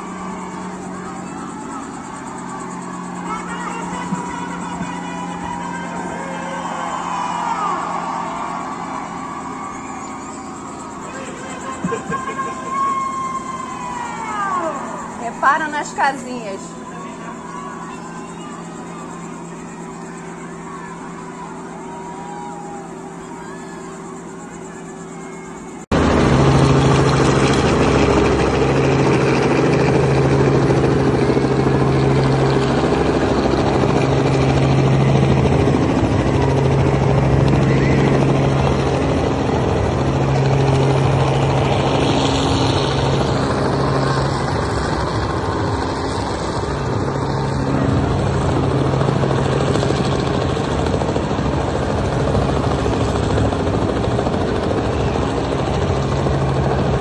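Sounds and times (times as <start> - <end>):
helicopter rotor and engine drone: 0.0 - 57.0.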